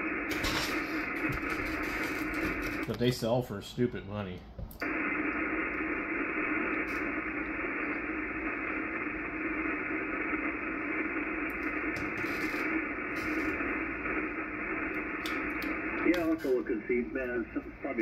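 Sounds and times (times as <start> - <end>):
radio receiver static hiss: 0.0 - 3.5, 4.8 - 18.0.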